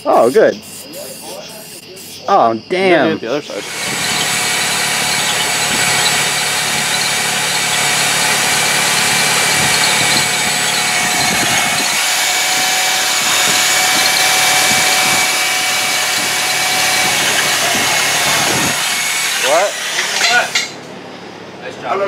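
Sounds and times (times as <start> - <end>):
drill bit grinding metal: 3.5 - 20.7
electric drill motor whine: 3.6 - 20.7.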